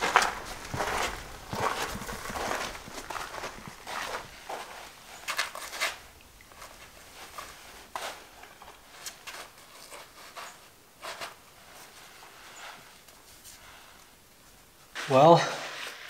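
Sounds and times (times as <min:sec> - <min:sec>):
footsteps on gritty sand: 0:00.0 - 0:08.7.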